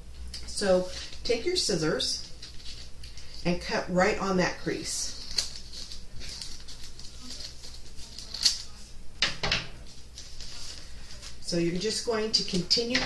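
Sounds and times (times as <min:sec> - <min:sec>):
scissors snipping paper: 0:05.1 - 0:08.8.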